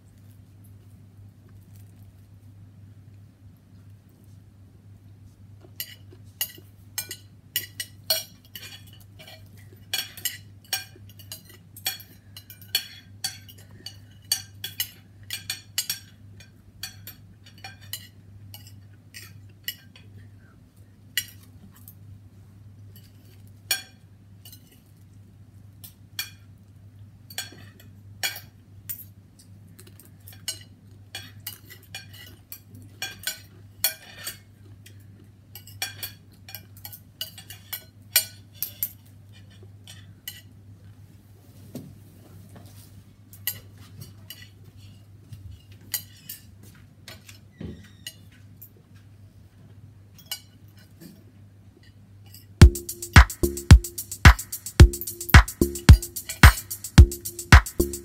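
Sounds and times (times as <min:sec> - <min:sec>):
cutlery clinking on a plate: 0:05.6 - 0:20.1, 0:22.9 - 0:24.9, 0:26.2 - 0:26.5, 0:27.3 - 0:40.6, 0:43.3 - 0:49.1, 0:50.1 - 0:51.2.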